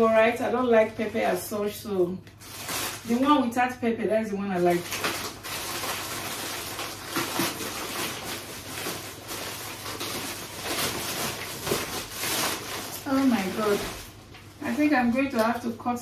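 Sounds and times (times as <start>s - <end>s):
plastic bags crinkling: 2.3s - 3.6s, 4.5s - 16.0s.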